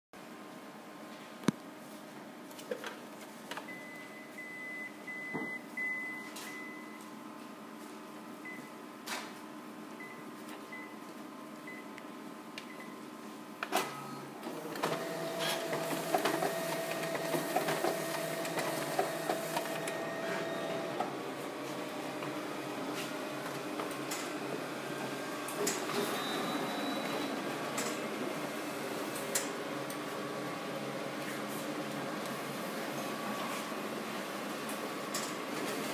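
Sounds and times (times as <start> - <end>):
touch-panel beeps: 3.7 - 7.0
copier running with mechanical whir: 13.6 - 35.9.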